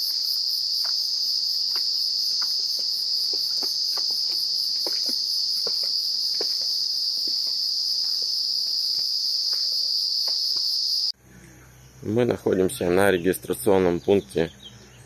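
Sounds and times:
high-pitched insect trill: 0.0 - 11.2.

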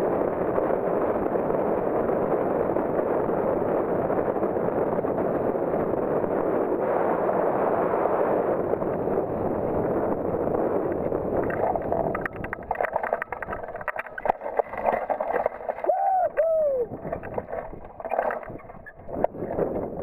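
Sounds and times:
wind rushing over microphone: 0.0 - 20.0
glider frame clicks and knocks: 11.4 - 15.9, 16.9 - 19.4
whoop-like calls: 15.8 - 17.0.

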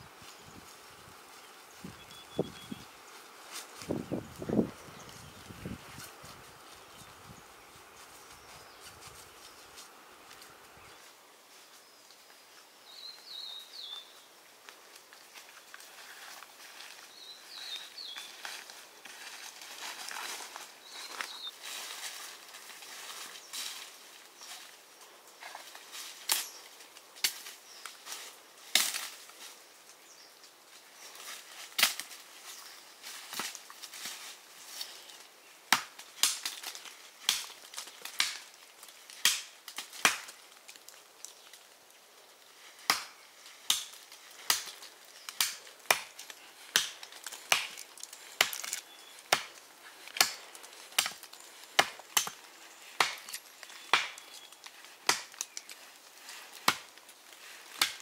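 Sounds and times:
blade chopping into wood: 57.8 - 58.0.

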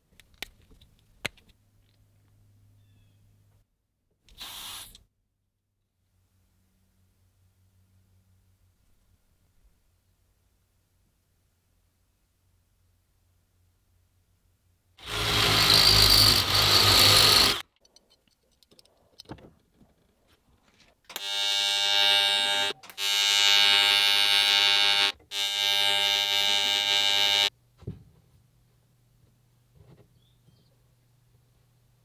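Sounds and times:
loud hiss: 4.4 - 5.0
welding arc buzzing: 21.1 - 27.5.

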